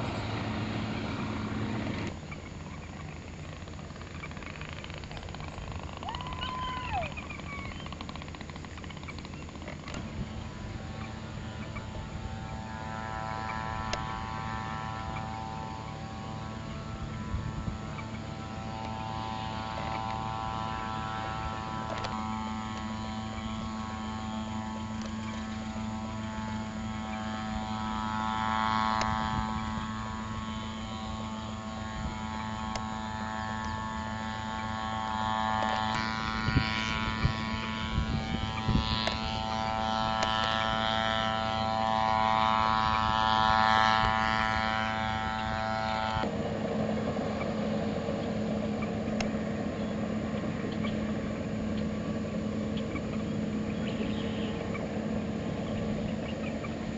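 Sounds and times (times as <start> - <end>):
tractor engines running: 0.0 - 56.9.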